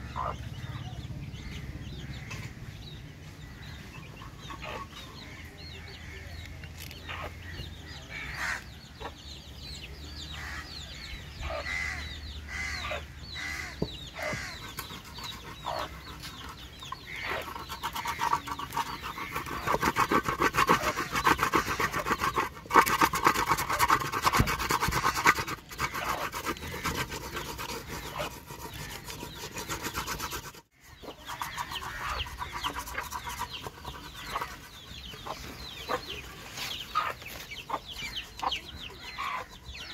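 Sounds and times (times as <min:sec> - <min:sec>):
chickens clucking: 0:00.0 - 0:39.9
fast rhythmic rasping: 0:14.3 - 0:36.3.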